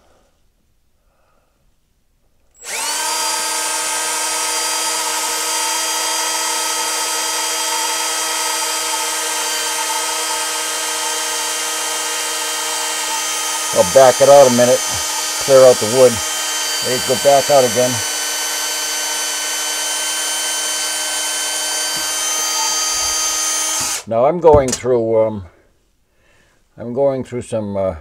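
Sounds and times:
electric drill whining: 2.6s - 24.1s.

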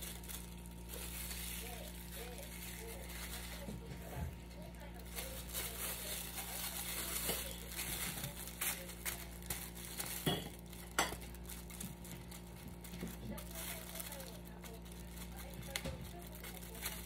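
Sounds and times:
dishware knocking: 10.2s - 11.2s.

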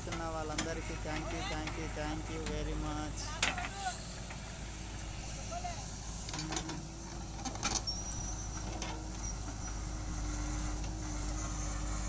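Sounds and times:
backhoe engine running: 0.0s - 12.0s.

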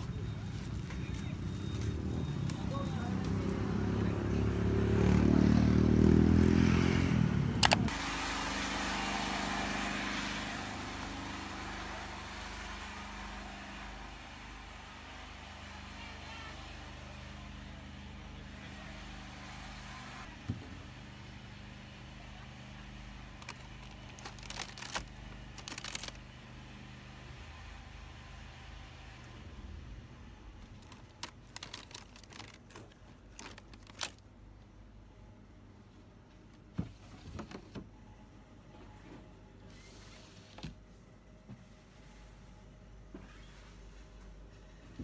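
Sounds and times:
vehicle engine running: 0.0s - 34.1s
plastic packaging crackling: 23.4s - 26.3s, 30.6s - 34.3s.

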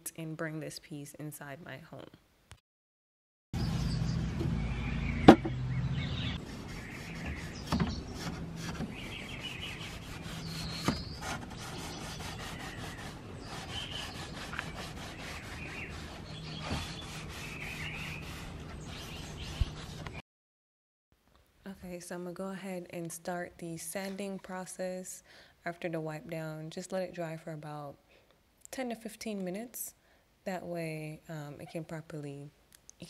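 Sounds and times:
sharp knocks: 5.3s - 5.6s
cloth wiping wooden drawer: 6.4s - 20.1s
sanding block rubbing wood: 6.4s - 20.2s.

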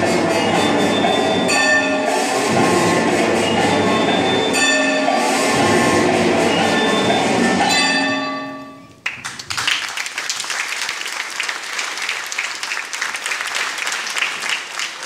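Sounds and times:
music with held notes: 0.0s - 9.0s
audience applause: 9.0s - 15.0s.

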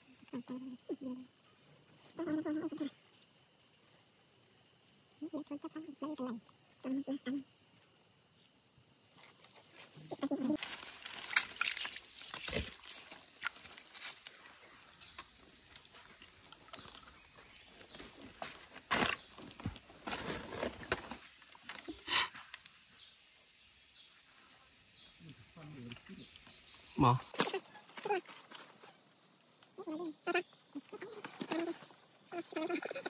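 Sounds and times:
dry leaves rustling: 10.3s - 14.7s, 17.9s - 21.8s.

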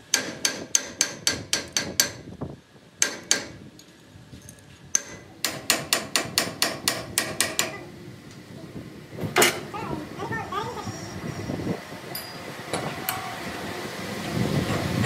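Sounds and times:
hammer striking metal: 0.1s - 2.2s, 3.0s - 3.6s, 5.0s - 7.8s.

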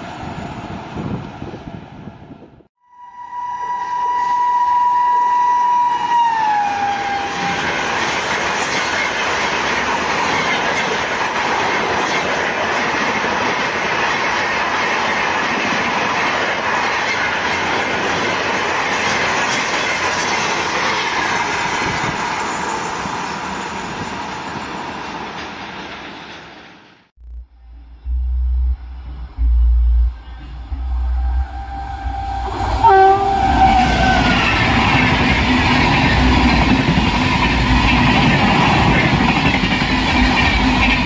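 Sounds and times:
locomotive horn: 2.8s - 7.8s, 30.2s - 34.6s.

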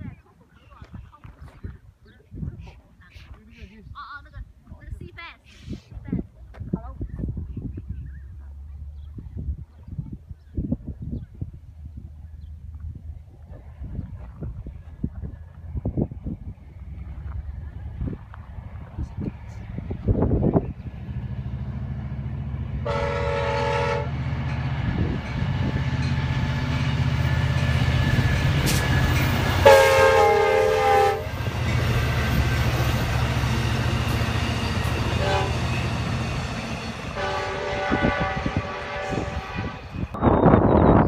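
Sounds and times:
train rumble: 10.8s - 41.0s
locomotive air horn blasts: 22.8s - 24.2s, 29.6s - 31.3s, 35.1s - 35.9s, 36.9s - 40.2s.

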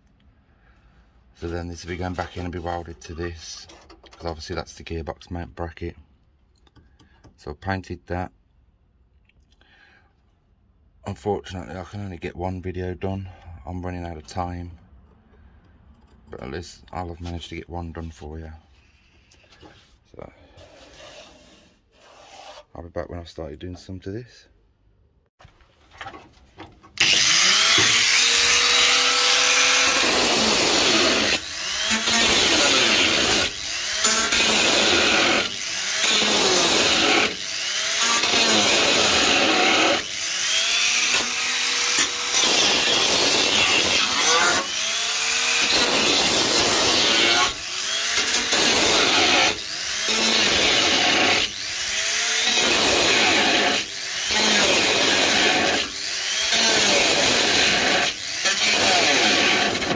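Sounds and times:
angle grinder cutting sheet steel: 27.0s - 59.9s.

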